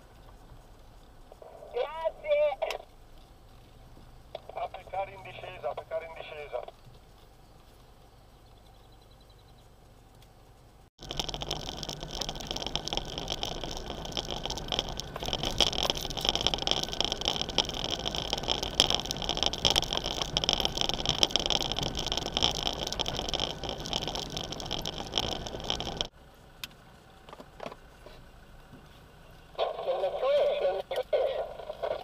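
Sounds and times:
vehicle engine hum: 0.0 - 32.0
tyres on gravel: 11.0 - 32.0.

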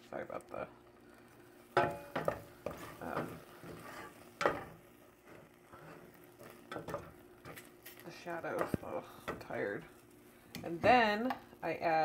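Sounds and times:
wooden spoon scraping a pot: 1.2 - 11.4.

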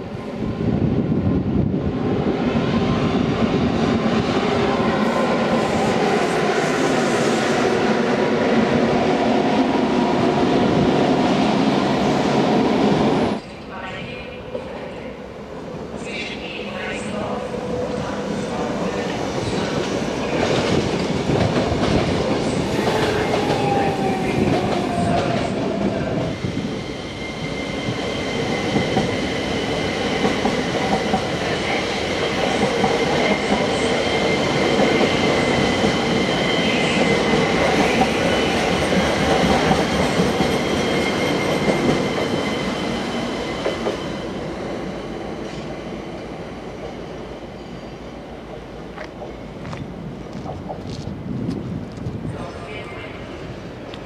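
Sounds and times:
electric train whine: 0.0 - 54.0
falling tones from distant train: 0.0 - 54.0.

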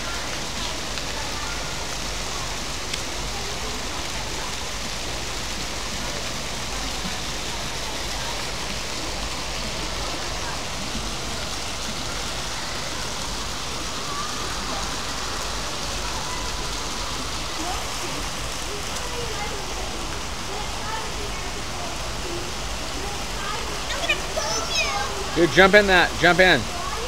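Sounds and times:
pool water jets splashing: 0.0 - 27.0.

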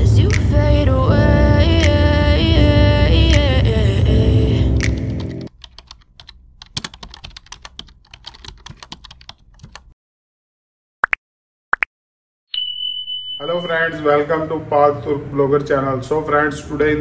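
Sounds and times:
background music: 0.0 - 5.5
keyboard typing clicks: 4.8 - 9.9.

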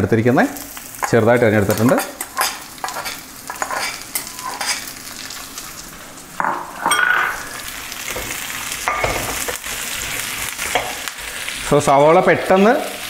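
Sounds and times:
onions sizzling in oil: 0.0 - 13.0
metal spatula scraping pan: 1.0 - 4.9.

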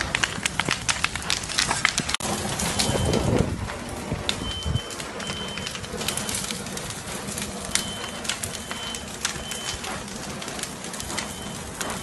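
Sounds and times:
fire crackling and popping: 0.0 - 12.0
rush of flames: 0.0 - 12.0
smoke alarm beeps: 2.8 - 3.4, 4.4 - 6.6, 7.6 - 10.0, 11.0 - 12.0.

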